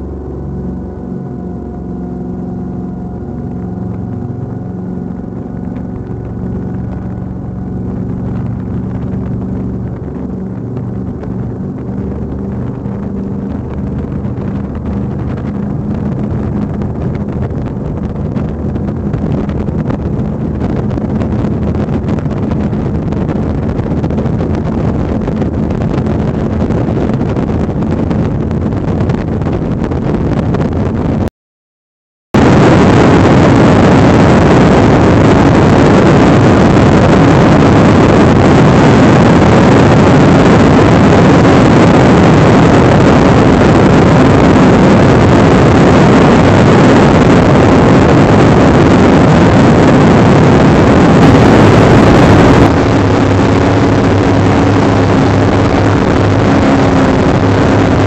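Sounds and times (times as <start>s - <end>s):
boat engines droning: 0.0s - 31.1s, 32.4s - 58.0s
wind and water rushing: 0.0s - 31.3s, 32.4s - 58.0s.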